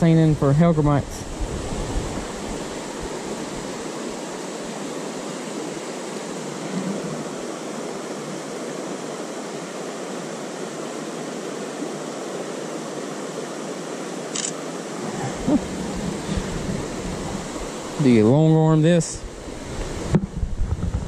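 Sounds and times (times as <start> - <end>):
river rushing over rocks: 0.0 - 20.2.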